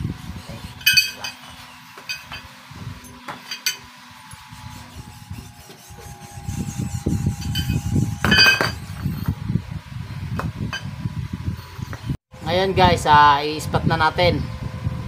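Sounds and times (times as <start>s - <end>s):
metal tubes clattering: 0.8s - 3.9s, 7.4s - 9.2s
ringing metallic clink: 0.8s - 3.9s, 7.4s - 9.3s.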